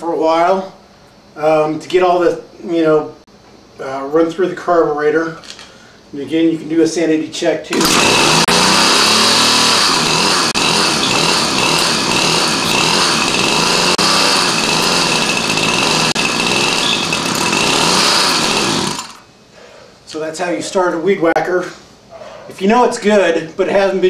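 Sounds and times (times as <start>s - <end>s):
string trimmer engine running: 7.7s - 19.3s.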